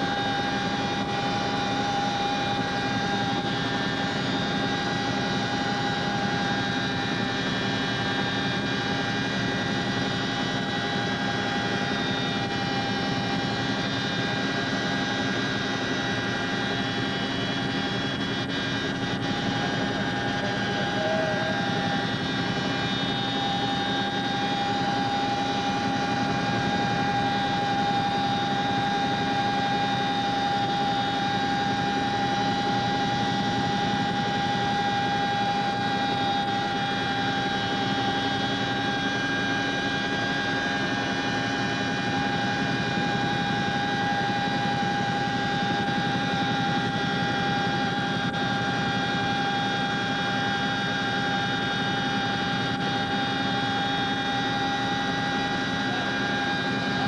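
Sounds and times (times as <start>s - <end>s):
high turbine whine: 0.0s - 57.0s
helicopter cabin din: 17.2s - 28.4s.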